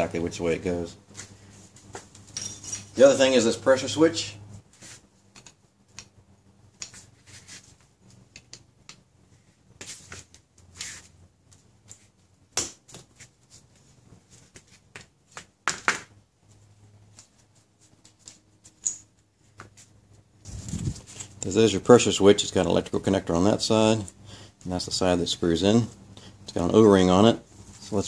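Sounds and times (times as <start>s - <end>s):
gloved hands rustling: 19.4s - 21.4s.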